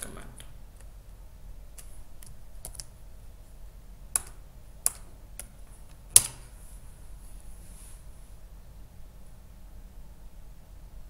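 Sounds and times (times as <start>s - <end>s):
keyboard keys clicking: 1.8s - 2.9s, 4.2s - 6.4s.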